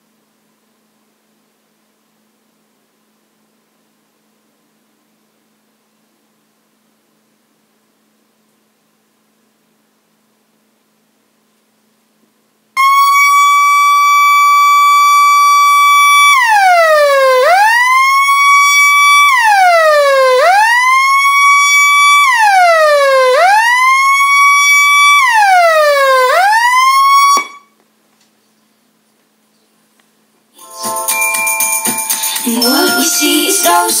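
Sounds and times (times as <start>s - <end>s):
electronic alarm tone: 12.8s - 20.4s, 30.6s - 34.0s
siren-like alarm sweeps: 12.8s - 27.7s.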